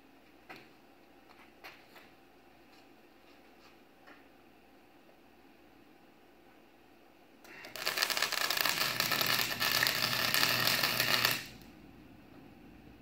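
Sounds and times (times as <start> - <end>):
welding arc crackling: 7.6 - 11.7.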